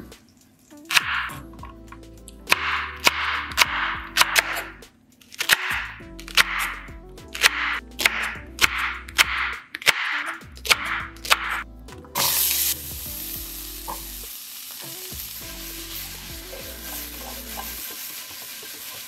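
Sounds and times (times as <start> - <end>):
knife chopping on wooden board: 2.5 - 4.8, 5.4 - 6.8, 7.4 - 11.6
food sizzling in skillet: 12.2 - 19.0.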